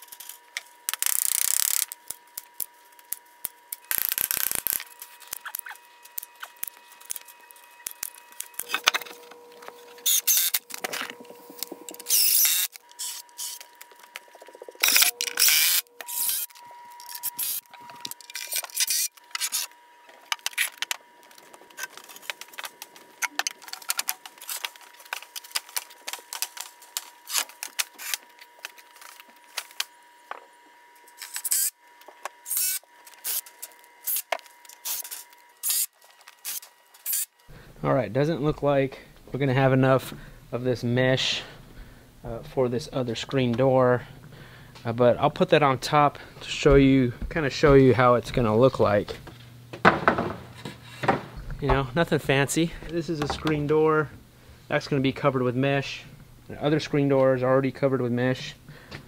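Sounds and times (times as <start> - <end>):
cordless drill driving screws: 9.7 - 11.0, 11.6 - 13.7, 14.8 - 19.8, 32.4 - 37.3
lumber clicks and knocks: 49.7 - 51.9.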